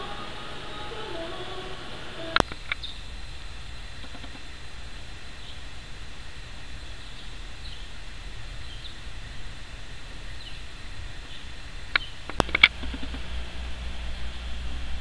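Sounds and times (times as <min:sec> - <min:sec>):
faint bird chirps: 0:00.0 - 0:03.2, 0:05.2 - 0:05.7, 0:06.7 - 0:09.1, 0:10.3 - 0:13.2
sharp clicks: 0:02.4 - 0:02.9, 0:04.0 - 0:04.5, 0:11.9 - 0:13.3
low rumble: 0:12.4 - 0:15.0.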